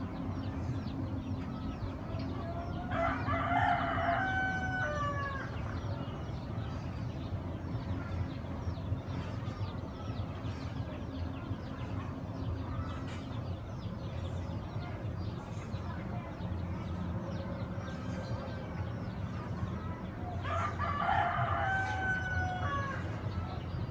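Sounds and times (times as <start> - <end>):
rooster crowing: 2.9 - 5.5, 20.4 - 23.0.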